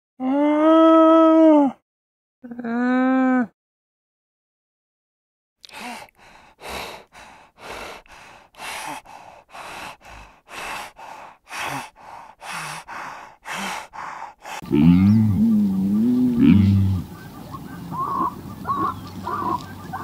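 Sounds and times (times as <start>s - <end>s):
hyena breathing heavily: 5.7s - 17.3s.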